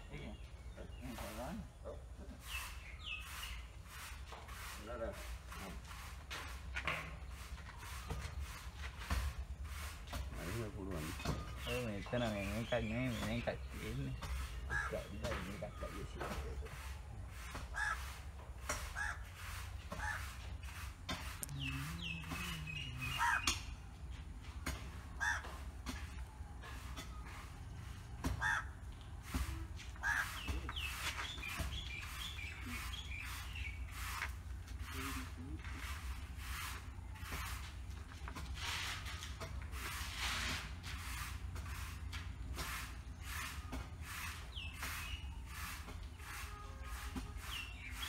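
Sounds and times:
bird chirps: 0.0s - 4.1s, 10.1s - 18.1s, 19.8s - 24.0s, 29.3s - 35.8s, 43.2s - 48.0s
broom sweeping concrete floor: 2.4s - 23.5s, 24.1s - 28.4s, 29.1s - 48.0s
crows cawing: 14.7s - 15.1s, 17.7s - 18.2s, 18.8s - 20.4s, 23.1s - 23.6s, 25.2s - 25.7s, 28.2s - 28.8s, 30.0s - 30.5s.

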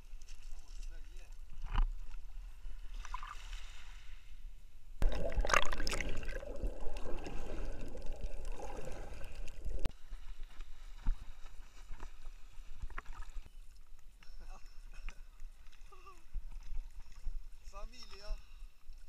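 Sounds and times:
underwater bubbling and gurgling: 5.0s - 9.9s
water splashing: 5.0s - 9.9s.

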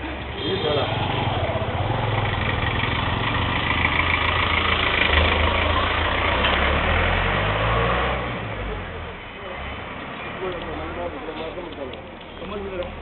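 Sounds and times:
vehicle engine running: 0.0s - 6.8s.

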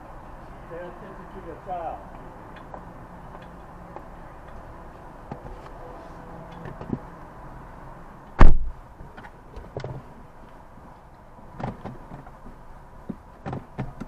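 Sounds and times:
car door thump: 8.4s - 8.7s.

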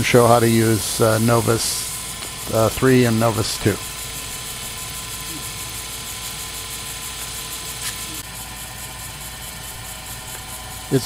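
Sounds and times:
lathe motor humming: 0.0s - 11.0s.

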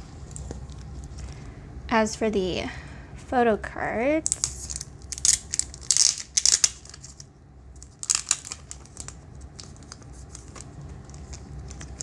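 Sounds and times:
plastic sleeve crinkling: 4.2s - 12.0s.

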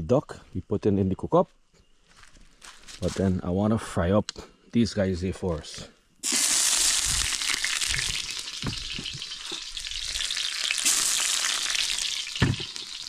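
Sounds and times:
onions sizzling in hot oil: 6.2s - 13.0s.

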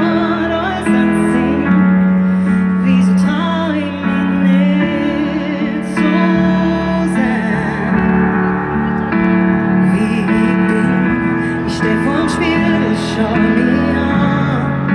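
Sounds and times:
piano chords: 0.0s - 14.9s
woman singing with vibrato: 0.0s - 14.9s.

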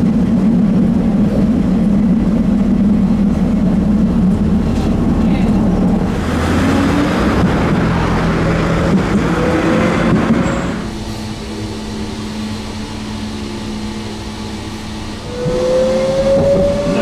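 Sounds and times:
steady hum inside tram: 0.0s - 17.0s
tram wheels and motor rumbling: 0.0s - 17.0s
traction motor whine: 3.9s - 17.0s.

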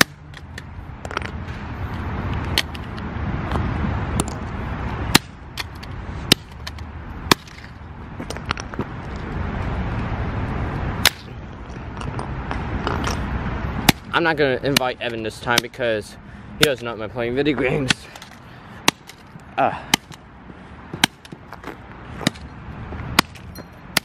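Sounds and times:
hammer cracking phone on asphalt: 0.0s - 1.4s, 2.5s - 2.9s, 5.1s - 8.7s, 11.0s - 11.3s, 13.8s - 14.1s, 14.7s - 15.8s, 17.8s - 20.2s, 20.9s - 22.5s, 23.2s - 24.0s.

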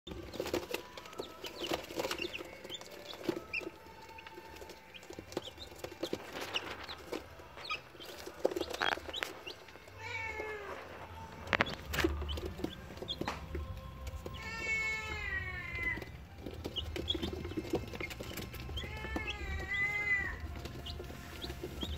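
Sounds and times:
chicks peeping: 0.1s - 21.9s.

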